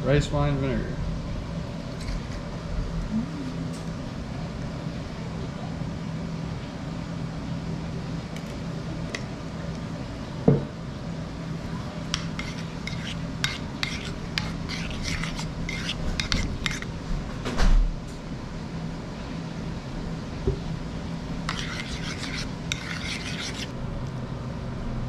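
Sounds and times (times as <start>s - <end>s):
steady low hum: 0.0s - 25.0s
sauce stirred in a bowl: 12.0s - 17.0s, 21.4s - 23.8s.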